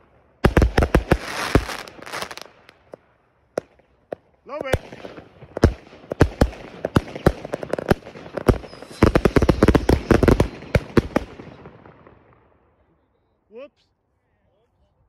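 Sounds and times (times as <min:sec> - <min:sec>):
firework crackling: 0:00.0 - 0:03.0, 0:03.6 - 0:12.0
firework bangs: 0:00.0 - 0:12.4
firework hiss: 0:00.6 - 0:02.5, 0:07.7 - 0:11.2.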